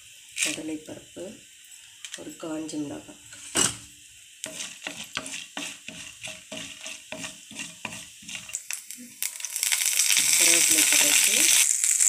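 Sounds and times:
oil sizzling: 0:00.0 - 0:12.0
spatula scraping pan: 0:04.4 - 0:08.7.

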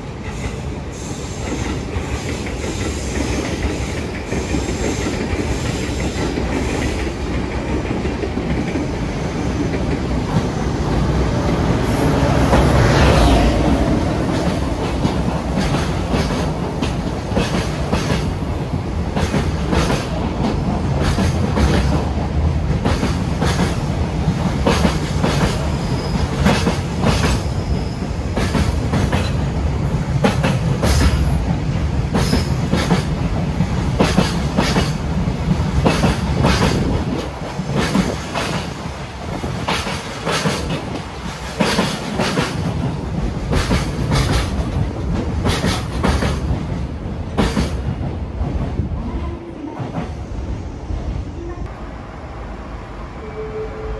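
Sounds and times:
train rumble: 0:00.0 - 0:53.9
wheels clacking over rail joints: 0:32.1 - 0:48.8.

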